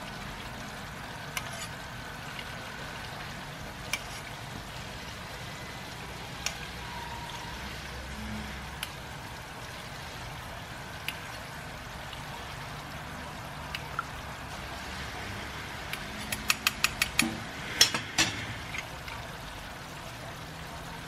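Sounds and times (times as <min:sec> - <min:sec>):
oil sizzling in a wok: 0:00.0 - 0:21.0
utensils clinking against wok: 0:01.3 - 0:01.7, 0:16.2 - 0:19.2.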